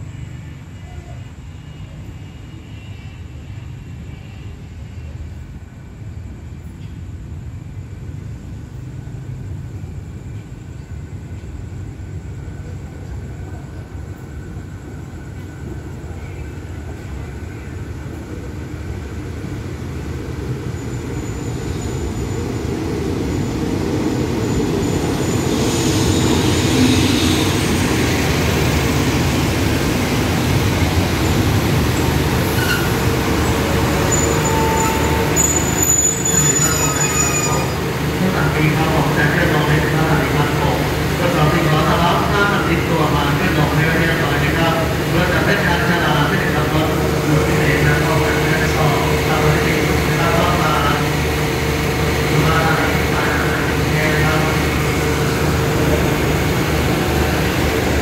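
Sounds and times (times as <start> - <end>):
train brakes squealing: 0.0 - 5.5, 20.5 - 29.5, 30.8 - 42.6
train rumbling: 0.0 - 58.0.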